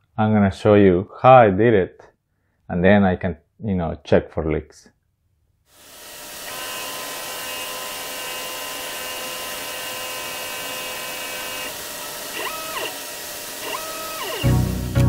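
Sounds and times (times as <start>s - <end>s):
stepper motors whining: 5.8s - 14.8s.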